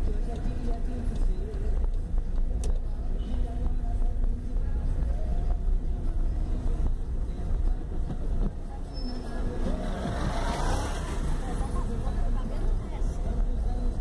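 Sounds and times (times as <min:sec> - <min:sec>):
bus running alongside: 0:00.0 - 0:14.0
tyres rumbling on cobblestones: 0:00.0 - 0:14.0.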